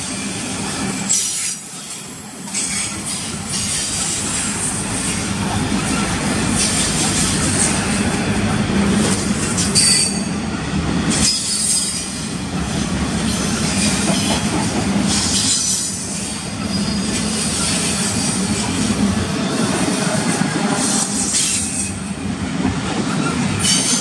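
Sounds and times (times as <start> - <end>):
train wheels rumbling on rail: 0.0 - 24.0
high-pitched wheel squeals: 0.1 - 4.3.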